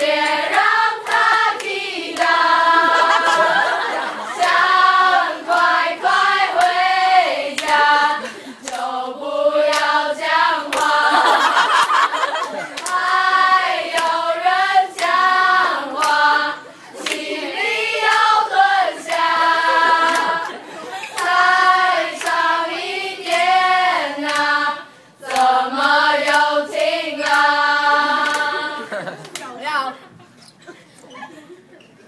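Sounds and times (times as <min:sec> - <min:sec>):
hand claps: 0:00.0 - 0:02.4, 0:07.5 - 0:07.9, 0:08.6 - 0:08.9, 0:09.7 - 0:10.0, 0:10.7 - 0:13.1, 0:13.9 - 0:14.2, 0:14.9 - 0:15.2, 0:15.9 - 0:16.3, 0:17.0 - 0:17.3, 0:18.0 - 0:18.3, 0:19.1 - 0:19.3, 0:20.0 - 0:20.6, 0:21.2 - 0:21.4, 0:22.1 - 0:22.4, 0:24.2 - 0:24.5, 0:25.2 - 0:25.6, 0:26.3 - 0:27.5, 0:28.2 - 0:29.5
voices singing together: 0:00.0 - 0:29.3.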